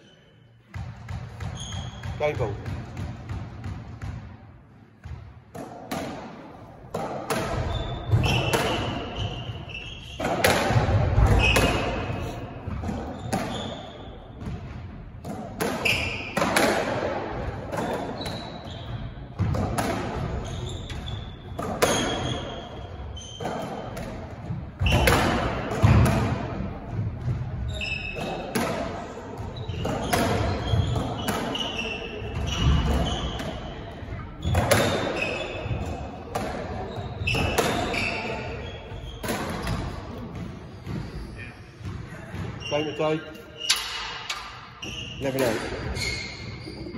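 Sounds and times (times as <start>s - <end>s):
squash ball hitting rackets and walls: 0.6s - 46.9s
trainers squeaking on wooden floor: 20.3s - 24.0s, 29.4s - 36.0s, 41.0s - 44.1s, 44.7s - 46.9s
shoes squeaking on wooden floor: 29.5s - 33.4s, 36.8s - 39.8s, 40.7s - 46.9s.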